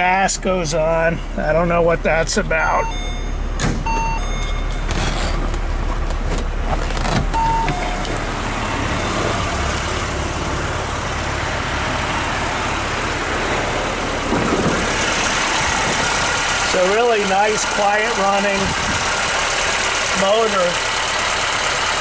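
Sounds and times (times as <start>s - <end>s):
car engine idling: 0.0s - 22.0s
short beeps: 2.8s - 4.9s, 7.4s - 8.2s.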